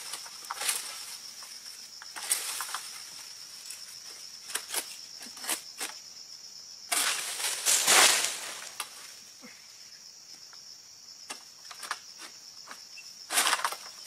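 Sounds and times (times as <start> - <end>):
pole rustling through palm fronds: 0.0 - 5.6, 6.9 - 9.3, 13.3 - 14.0
insects droning: 0.0 - 14.0.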